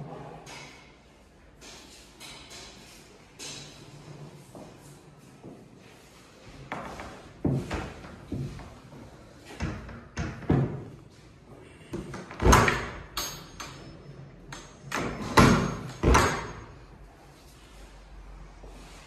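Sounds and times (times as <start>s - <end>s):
sliding wardrobe doors knocking: 6.8s - 8.8s, 9.6s - 10.9s.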